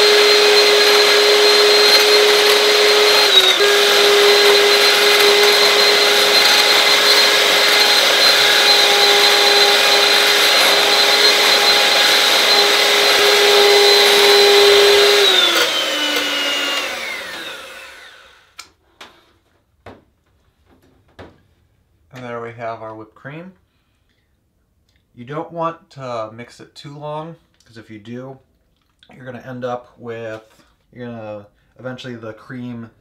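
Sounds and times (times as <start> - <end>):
electric hand mixer whining: 0.0 - 18.6.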